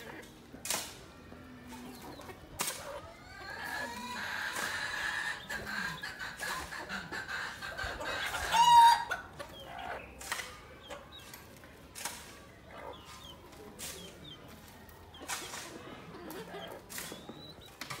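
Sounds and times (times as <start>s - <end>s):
chickens clucking: 0.0s - 18.0s
loud chicken call: 8.3s - 9.2s.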